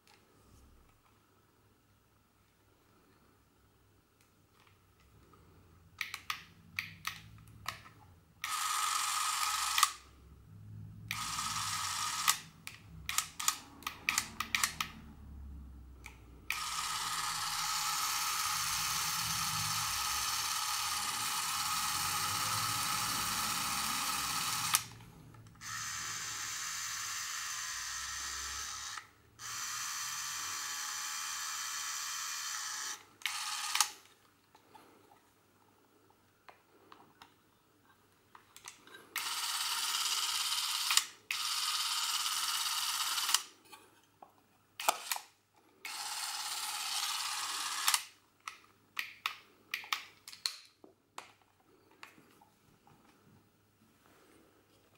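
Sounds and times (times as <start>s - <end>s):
camera motor whirring: 8.4s - 10.0s, 11.1s - 12.5s, 16.5s - 25.0s, 25.6s - 34.0s, 39.2s - 43.5s, 45.8s - 48.1s.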